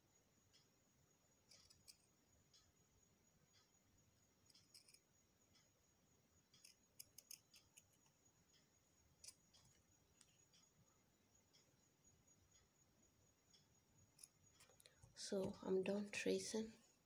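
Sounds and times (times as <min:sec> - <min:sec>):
scissors snipping fabric: 0:04.5 - 0:05.0, 0:06.6 - 0:08.0.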